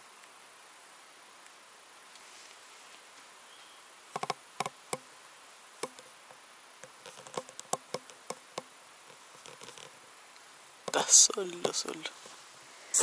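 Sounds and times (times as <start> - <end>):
faint steady hiss: 0.0 - 13.0
sharp clicks and taps: 4.2 - 5.1, 5.8 - 6.1, 6.8 - 9.9.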